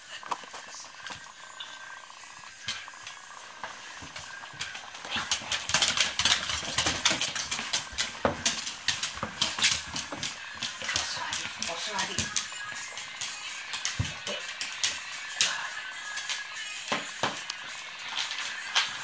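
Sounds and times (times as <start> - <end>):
dog claws clicking on wooden floor: 4.0 - 19.0.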